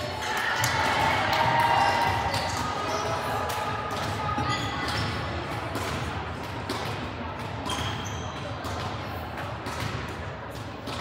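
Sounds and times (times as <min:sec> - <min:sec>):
murmur of voices: 0:00.0 - 0:11.0
balls bouncing on hardwood floor: 0:03.9 - 0:11.0.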